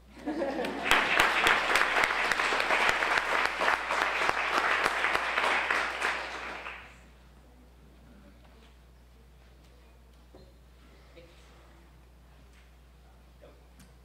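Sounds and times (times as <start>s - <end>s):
audience applauding: 0.5s - 7.0s.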